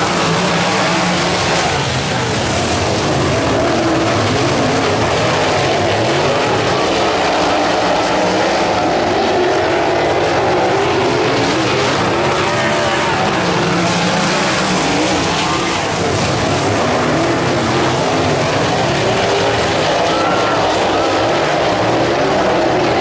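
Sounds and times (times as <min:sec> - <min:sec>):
race car engines at high revs: 0:00.0 - 0:23.0.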